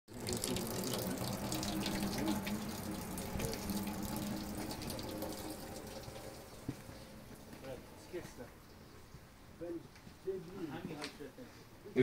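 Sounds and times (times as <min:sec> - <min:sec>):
running water rushing: 0:00.1 - 0:08.9.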